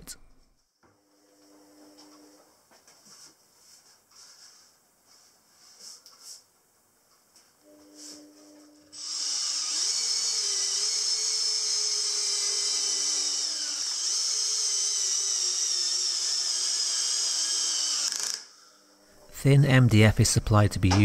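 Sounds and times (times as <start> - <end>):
cordless drill whining: 9.0 - 18.6.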